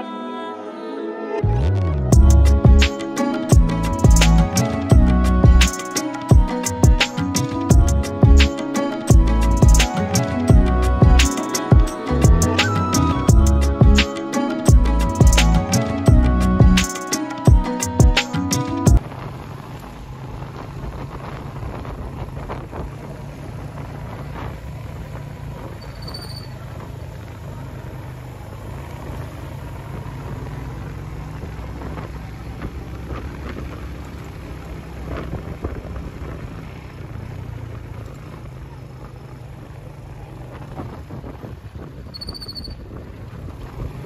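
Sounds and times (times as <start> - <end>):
motorcycle engine running: 2.1 - 14.1, 14.7 - 16.9, 18.8 - 44.0
wind noise on microphone: 20.5 - 24.6, 35.0 - 36.5, 40.5 - 44.0.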